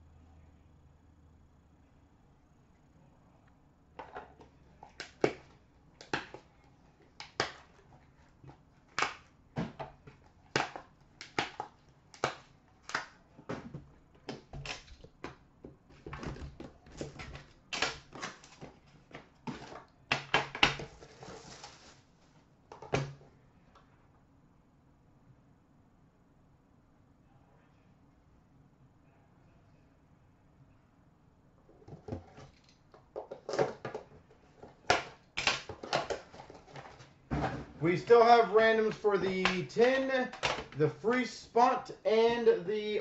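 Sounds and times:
packaging rustling: 0:20.6 - 0:22.1, 0:32.2 - 0:37.2.

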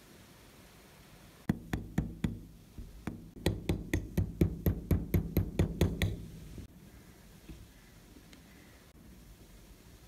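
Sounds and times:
hammer tapping metal punch: 0:01.5 - 0:06.4.

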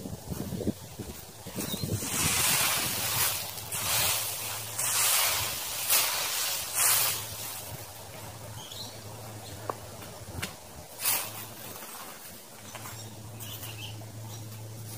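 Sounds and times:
rake dragging through dry leaves: 0:00.2 - 0:08.8, 0:10.9 - 0:13.9.

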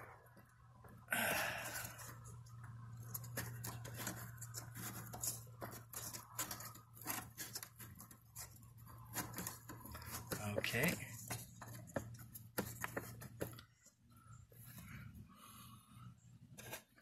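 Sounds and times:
fingers scratching at stick: 0:01.6 - 0:13.6.

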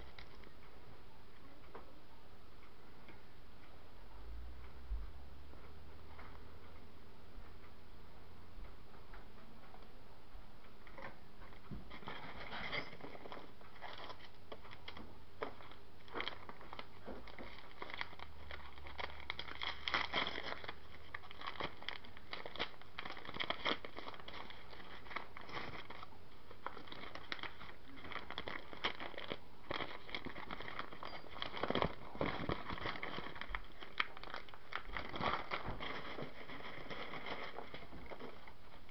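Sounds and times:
packing peanuts rustling: 0:12.0 - 0:38.9.

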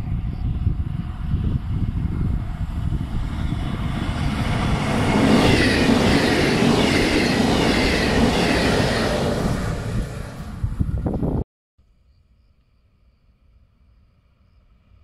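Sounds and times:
train wheels rushing on rail: 0:00.0 - 0:11.3.

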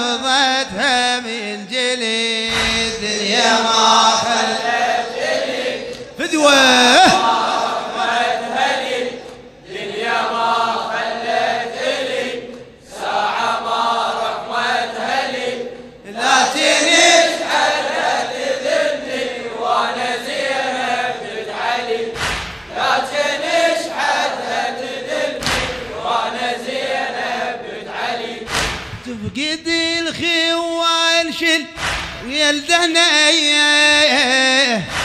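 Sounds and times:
voices chanting a lament: 0:00.0 - 0:35.0
low thumps: 0:02.5 - 0:03.1.

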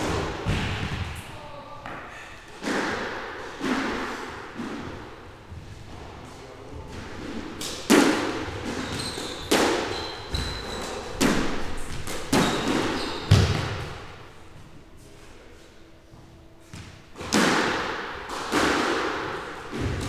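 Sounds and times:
squash ball hits: 0:00.0 - 0:01.3, 0:01.9 - 0:05.2, 0:06.9 - 0:14.2, 0:16.7 - 0:20.0
shoe squeaks on wooden floor: 0:08.6 - 0:11.2, 0:11.8 - 0:13.7.

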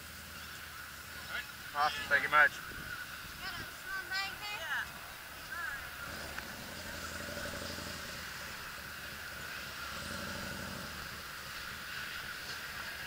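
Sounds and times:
two-stroke motorcycle engine running: 0:06.0 - 0:13.0.

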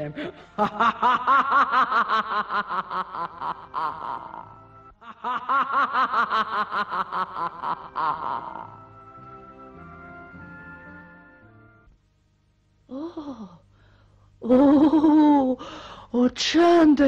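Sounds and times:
puppet voice laughing: 0:00.6 - 0:08.8, 0:14.5 - 0:15.5.

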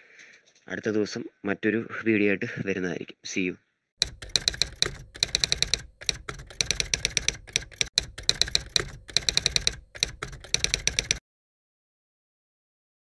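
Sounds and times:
keyboard keystroke clicks: 0:04.0 - 0:11.2.

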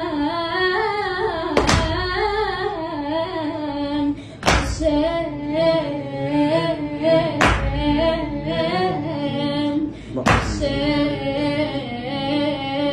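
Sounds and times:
boy singing chant: 0:00.0 - 0:12.9
hand strike: 0:01.6 - 0:02.2, 0:04.4 - 0:05.0, 0:07.4 - 0:07.9, 0:10.2 - 0:10.7.

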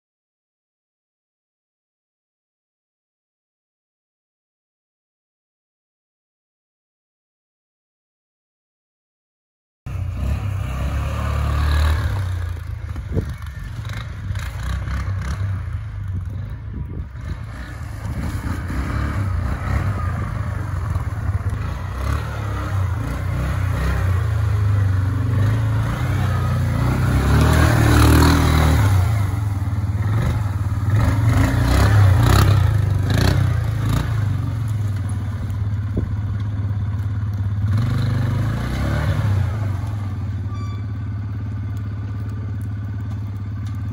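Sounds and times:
atv engine revving: 0:09.9 - 0:43.9
tyres churning through snow: 0:09.9 - 0:43.9.

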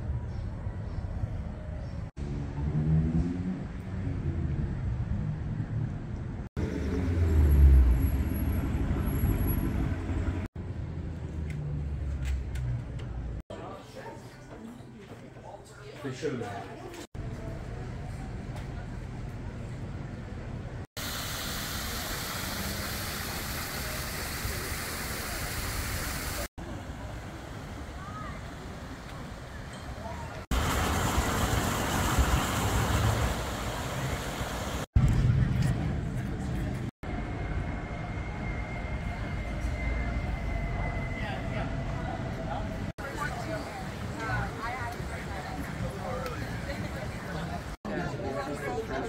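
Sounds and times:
cars passing with low rumble: 0:00.0 - 0:13.4
fountain water splashing into pool: 0:21.0 - 0:26.5, 0:30.5 - 0:34.9.

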